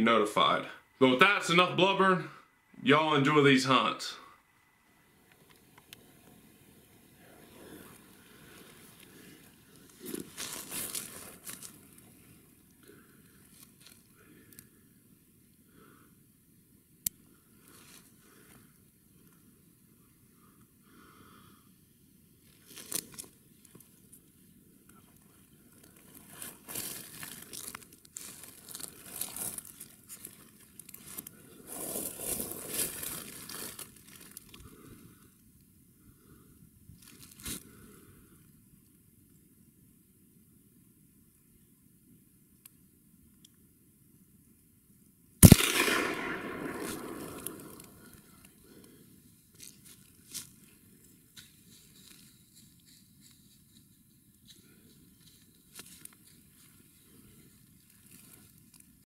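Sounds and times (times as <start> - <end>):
rustling and crinkling: 7.7 - 12.5, 13.4 - 14.1, 22.4 - 24.4, 25.0 - 34.8, 36.9 - 37.8, 47.6 - 59.0
rifle shot echo: 45.4 - 48.3
faint clicks and rustles: 48.0 - 59.0.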